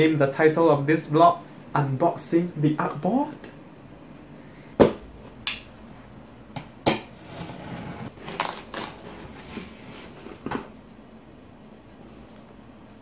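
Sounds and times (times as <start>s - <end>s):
knocks on cardboard box: 4.8s - 5.0s.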